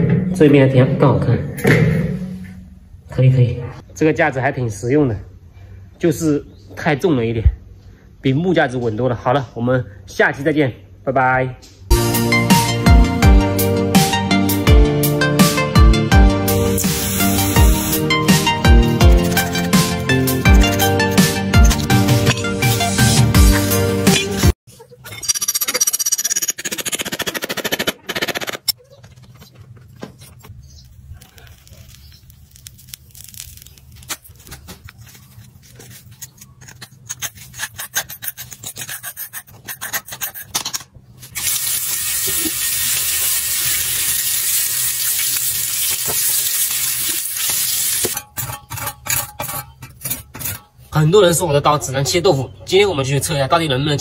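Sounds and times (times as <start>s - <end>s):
loud steady hiss: 16.8s - 18.1s
metal tools scraping sand: 16.8s - 23.2s, 34.0s - 41.7s, 47.4s - 51.0s.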